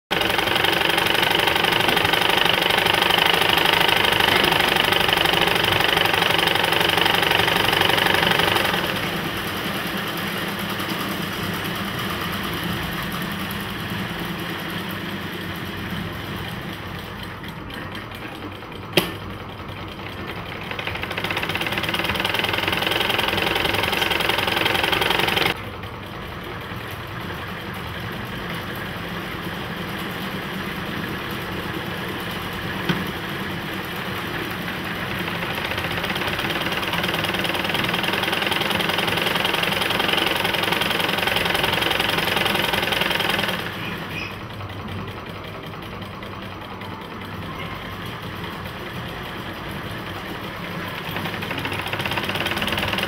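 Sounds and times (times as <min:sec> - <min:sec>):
sewing machines clattering: 0:00.1 - 0:53.0.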